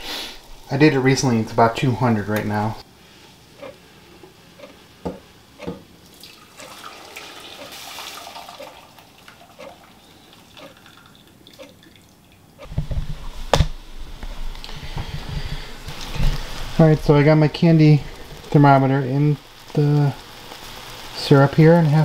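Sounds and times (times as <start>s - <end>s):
syrup trickling and dripping: 6.0s - 12.5s.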